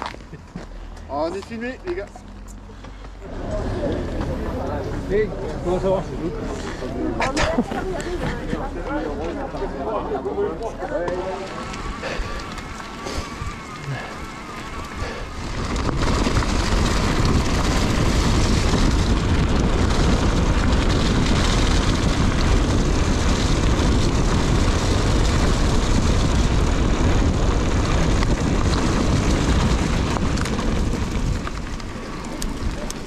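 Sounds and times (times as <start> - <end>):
bike tyres rolling on trail: 0.0 - 33.0
wind rushing over microphone: 11.3 - 33.0.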